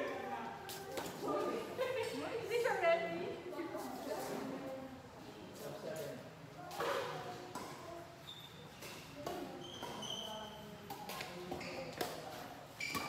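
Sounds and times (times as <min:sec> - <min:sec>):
shoes squeaking on floor: 0:08.2 - 0:10.8, 0:11.5 - 0:13.0.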